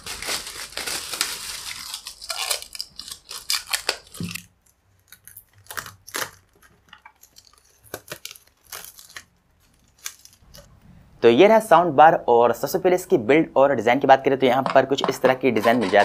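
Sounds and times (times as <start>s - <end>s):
plastic film crinkling: 0.0s - 10.7s.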